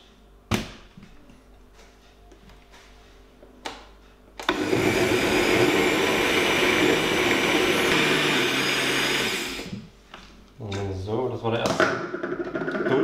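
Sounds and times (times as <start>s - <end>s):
blender motor running: 4.5s - 9.8s.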